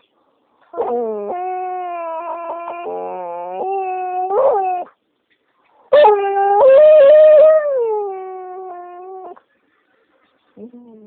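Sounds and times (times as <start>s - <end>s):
dog howling: 0.8s - 4.9s.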